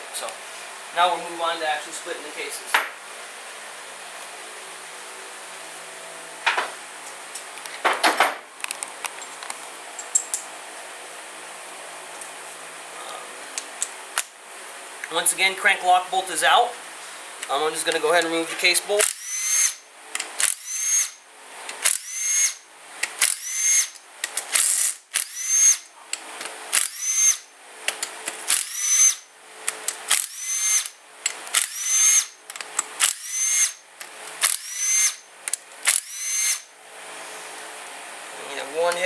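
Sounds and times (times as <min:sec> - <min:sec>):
cordless drill whirring: 0:19.0 - 0:19.8, 0:20.4 - 0:21.2, 0:21.8 - 0:22.6, 0:23.2 - 0:25.9, 0:26.7 - 0:27.5, 0:28.5 - 0:29.3, 0:30.1 - 0:31.0, 0:31.6 - 0:32.4, 0:33.0 - 0:33.8, 0:34.4 - 0:35.2, 0:35.8 - 0:36.7.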